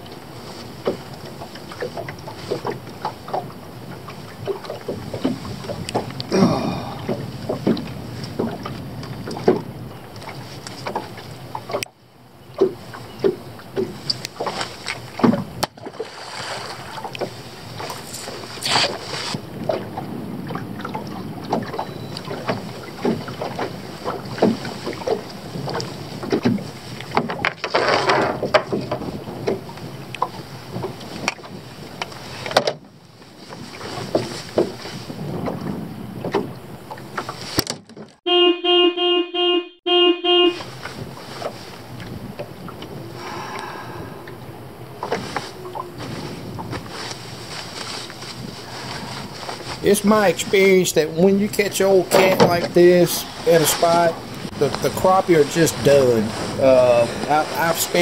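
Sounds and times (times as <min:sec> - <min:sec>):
wind buffeting microphone: 0:00.0 - 0:11.8, 0:16.4 - 0:27.6, 0:28.2 - 0:37.6, 0:40.6 - 0:58.0
water lapping against boat hull: 0:00.0 - 0:58.0
knocks and clatters of gear: 0:25.8 - 0:29.6.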